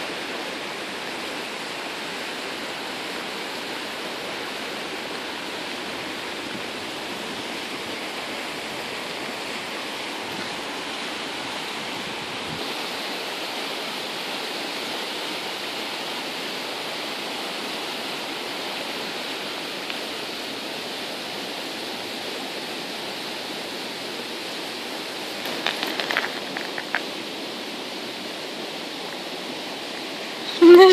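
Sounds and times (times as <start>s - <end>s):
steady rushing hiss: 0.0s - 30.9s
clicks and rustles: 25.3s - 27.1s.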